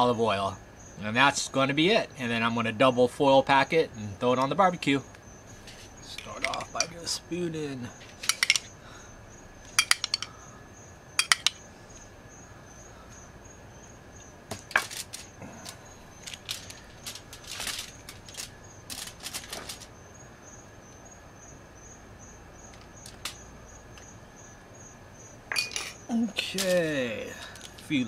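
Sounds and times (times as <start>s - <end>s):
aluminium foil crinkling: 14.6s - 20.0s, 22.8s - 23.4s, 26.4s - 28.0s.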